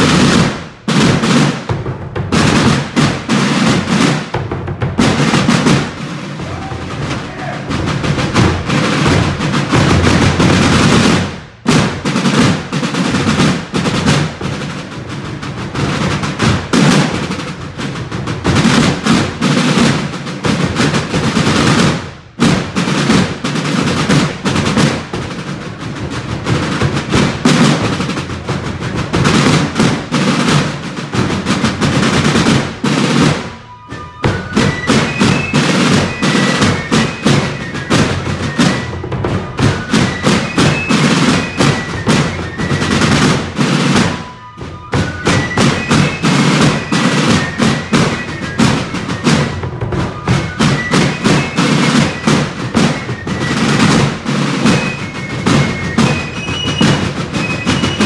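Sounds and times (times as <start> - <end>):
field drums playing: 0.0 - 58.0
fifes playing high melody: 32.0 - 58.0.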